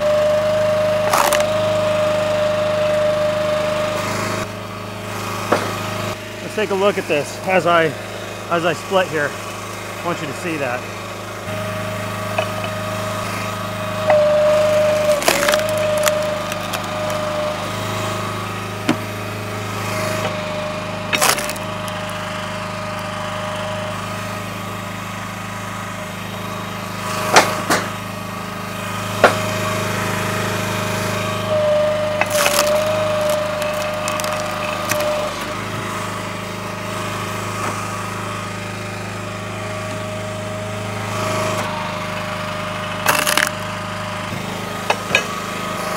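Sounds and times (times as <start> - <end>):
log splitter engine running: 0.0 - 45.9
wood cracking and splitting: 1.0 - 1.8, 14.1 - 23.2, 32.0 - 35.6, 43.0 - 43.8.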